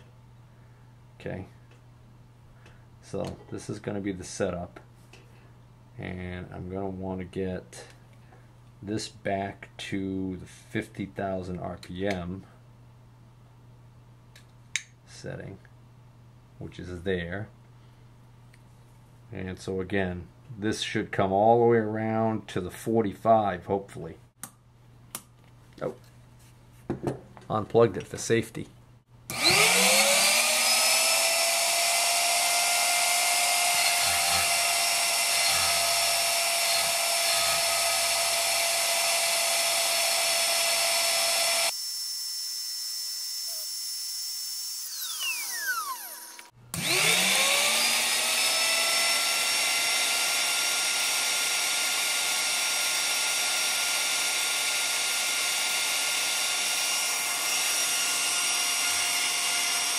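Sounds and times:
high-speed grinder whine: 0:29.3 - 0:59.9.

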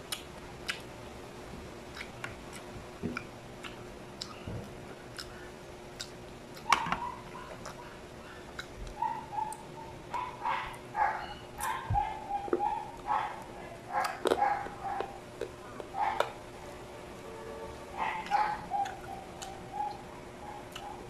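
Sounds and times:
chewing and lip smacks: 0:00.0 - 0:00.9, 0:01.9 - 0:16.4, 0:18.0 - 0:21.0
faint steady hum: 0:00.0 - 0:21.0
dog whimpering: 0:09.0 - 0:15.2, 0:18.0 - 0:21.0.

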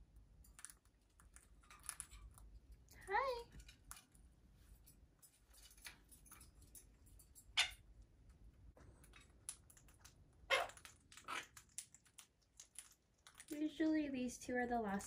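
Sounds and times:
parrot squawks: 0:07.5 - 0:07.8, 0:10.5 - 0:11.6
beaks clicking and tapping: 0:09.1 - 0:13.9.

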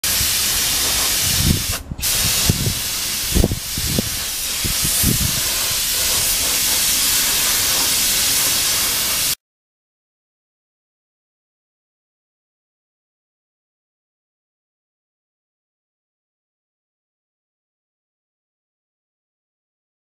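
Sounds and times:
paint spray gun hissing: 0:00.0 - 0:09.4.

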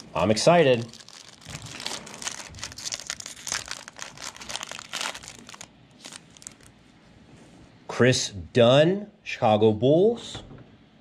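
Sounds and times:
foil wrapper crinkling: 0:00.0 - 0:06.7.

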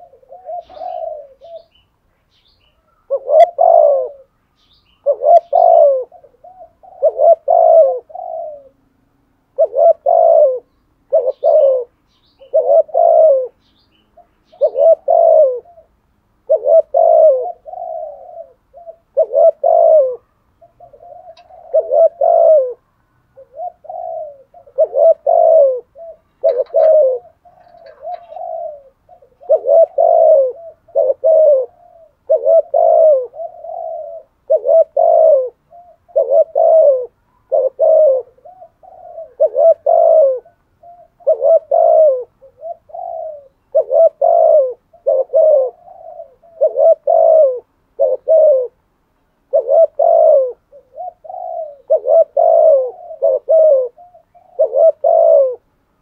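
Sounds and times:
dove cooing: 0:00.0 - 0:01.9, 0:02.6 - 0:48.8, 0:49.5 - 0:55.7.

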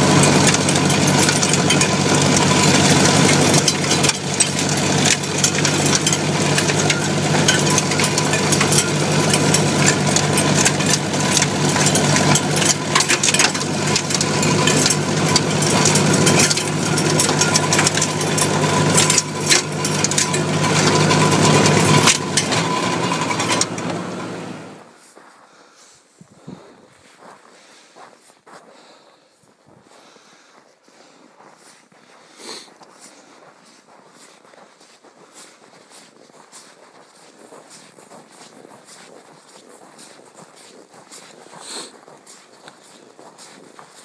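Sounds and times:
sharp ticks and rattles: 0:00.0 - 0:24.8, 0:35.2 - 0:44.0
tractor engine droning: 0:00.0 - 0:25.0.

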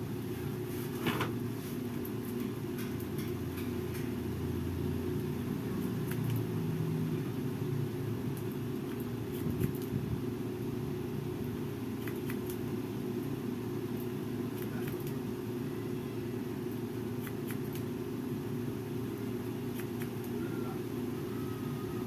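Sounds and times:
air conditioner humming: 0:00.0 - 0:22.0
scissors snipping hair: 0:05.8 - 0:06.5, 0:12.0 - 0:12.6, 0:14.0 - 0:15.2, 0:17.2 - 0:17.9, 0:19.7 - 0:20.4.

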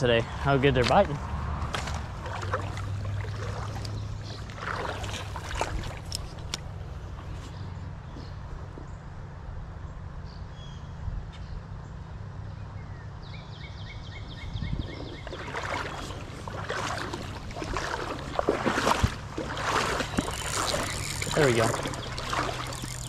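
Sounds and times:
highway traffic rumble: 0:00.0 - 0:23.0
splashing in shallow water: 0:00.6 - 0:07.9, 0:14.8 - 0:23.0.

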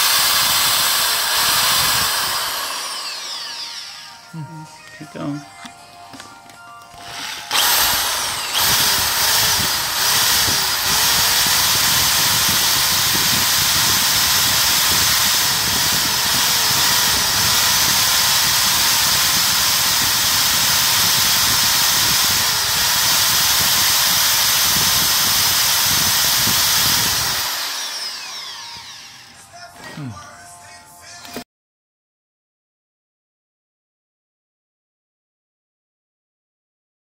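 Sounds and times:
power drill boring through plastic: 0:00.0 - 0:04.2, 0:06.9 - 0:30.1.

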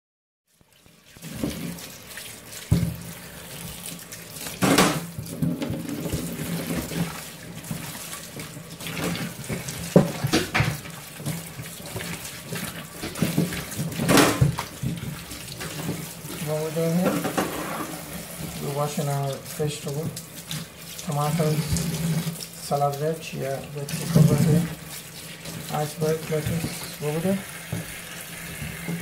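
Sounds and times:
water splashing: 0:00.6 - 0:29.0
tap running into a sink: 0:01.2 - 0:02.0, 0:02.6 - 0:03.8, 0:04.4 - 0:29.0
knocks against a sink: 0:04.6 - 0:06.4, 0:09.9 - 0:10.8, 0:14.0 - 0:14.6.

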